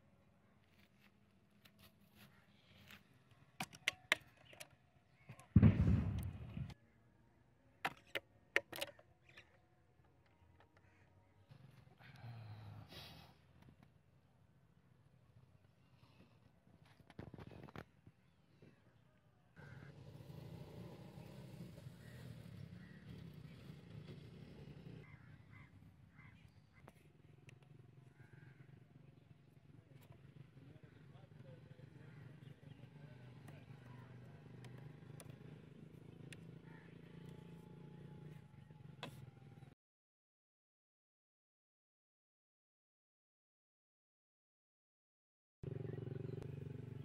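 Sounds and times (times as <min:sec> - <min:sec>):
clicks and taps of handled objects: 0:03.6 - 0:05.5, 0:07.8 - 0:09.6.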